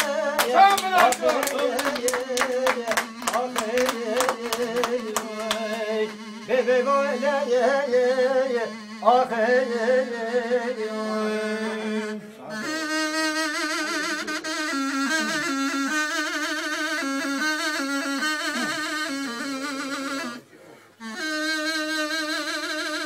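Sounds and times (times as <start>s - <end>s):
hand claps: 0.0s - 5.9s
man singing: 0.0s - 12.2s
wooden reed pipe: 2.6s - 23.0s.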